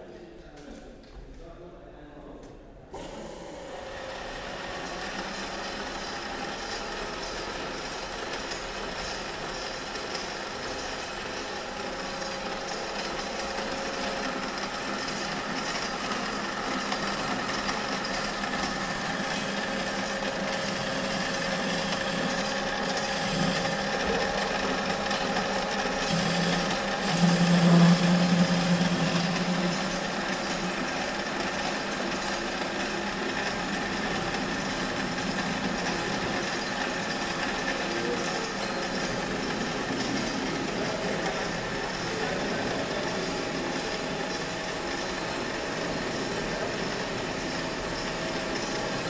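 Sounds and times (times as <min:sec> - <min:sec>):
lathe humming: 0:03.0 - 0:49.0
cutting tool scraping metal: 0:15.0 - 0:30.8
low drone: 0:15.1 - 0:31.2.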